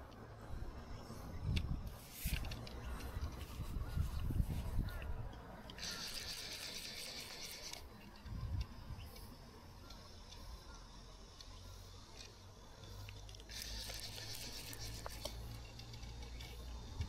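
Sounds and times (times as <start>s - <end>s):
fly reel ratchet buzzing: 5.6s - 17.0s.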